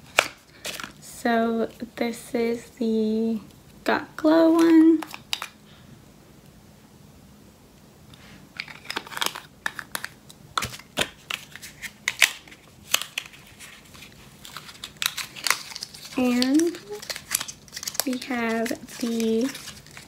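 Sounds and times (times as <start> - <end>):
plastic wrapping crinkling: 8.6 - 20.0.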